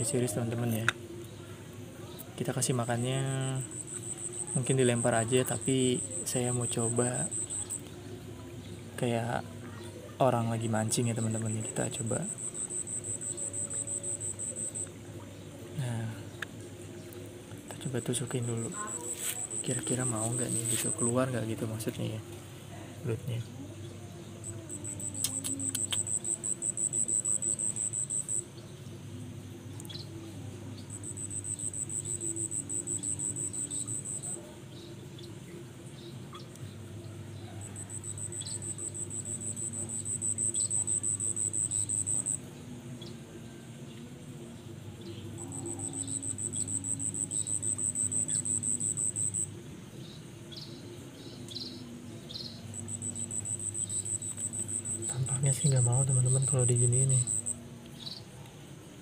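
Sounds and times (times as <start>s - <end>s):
insect high pulsing trill: 2.1s - 7.9s, 9.0s - 16.2s, 17.8s - 22.2s, 23.2s - 35.3s, 35.9s - 43.1s, 45.0s - 58.3s
faint short chirps: 24.8s - 28.4s.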